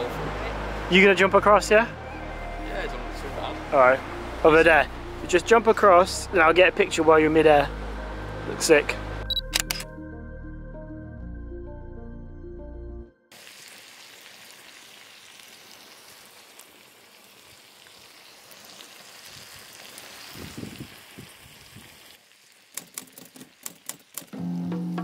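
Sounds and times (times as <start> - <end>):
wood fire crackling and popping: 22.4 - 24.4.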